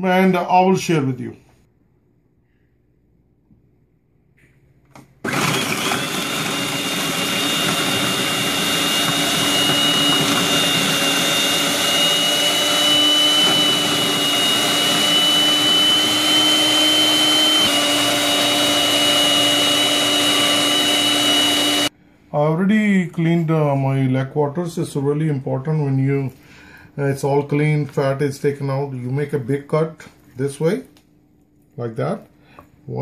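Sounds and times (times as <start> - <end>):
food processor motor whining: 5.2 - 21.9.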